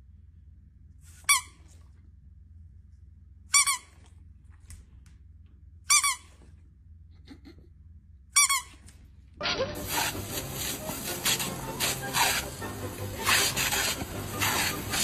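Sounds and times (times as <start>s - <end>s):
squeaky dog toy squeaking: 1.2s - 1.7s, 3.5s - 4.0s, 5.9s - 6.4s, 8.4s - 15.0s.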